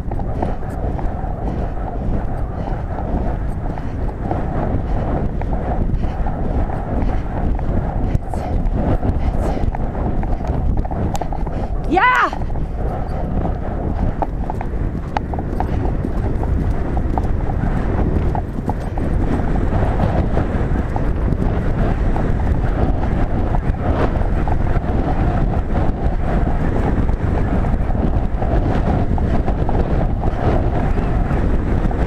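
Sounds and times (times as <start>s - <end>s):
wind buffeting microphone: 0.0s - 32.0s
horse hoofbeats on turf: 12.8s - 23.6s.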